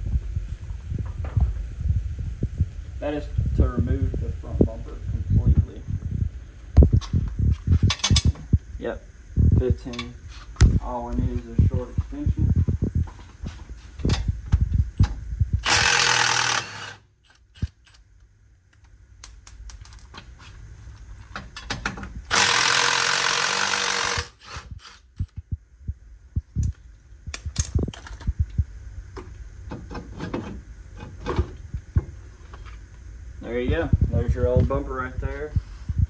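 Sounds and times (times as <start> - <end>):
impact wrench hammering: 15.6 - 18.0, 22.3 - 25.1.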